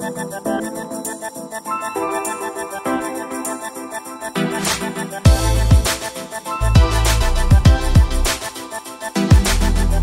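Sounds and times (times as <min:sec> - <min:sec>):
electronic dance music: 0:00.0 - 0:10.0
heavy kick drums: 0:05.3 - 0:05.9, 0:06.8 - 0:08.2.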